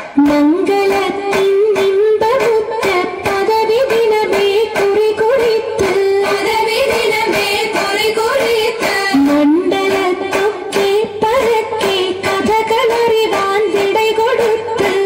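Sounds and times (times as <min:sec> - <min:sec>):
person singing: 0:00.0 - 0:07.4, 0:08.4 - 0:15.0
rhythmic clapping: 0:00.0 - 0:15.0.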